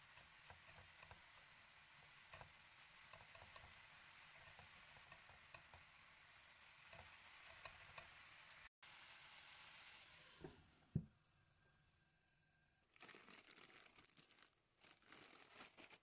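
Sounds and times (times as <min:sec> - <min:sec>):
food sizzling in a pan: 0:00.0 - 0:10.9
small crackles: 0:12.9 - 0:16.0.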